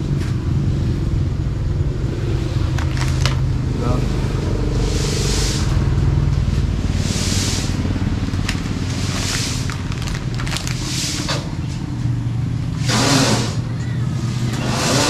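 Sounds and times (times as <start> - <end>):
vehicle engine running: 0.0 - 15.0
hissing swish: 4.5 - 6.0.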